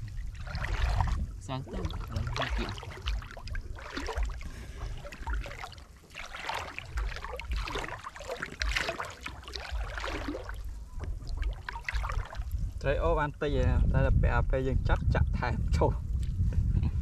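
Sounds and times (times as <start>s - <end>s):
water sloshing and splashing: 0.0s - 12.8s
low rumble: 0.0s - 17.0s.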